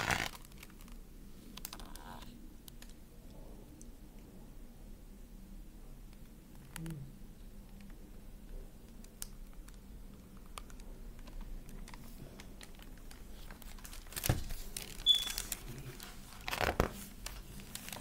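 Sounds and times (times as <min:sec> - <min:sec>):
book pages turning: 0:00.0 - 0:01.0, 0:10.7 - 0:18.0
paper rustling: 0:11.2 - 0:18.0
brief high squeak: 0:15.1 - 0:15.4.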